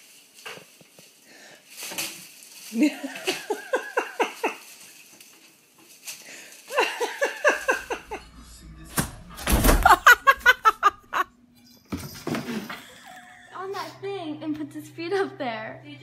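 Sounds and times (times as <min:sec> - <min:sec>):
plastic bag crinkling: 0:00.0 - 0:08.1
person laughing: 0:02.8 - 0:04.6, 0:06.7 - 0:08.4, 0:09.7 - 0:11.3, 0:12.5 - 0:14.0.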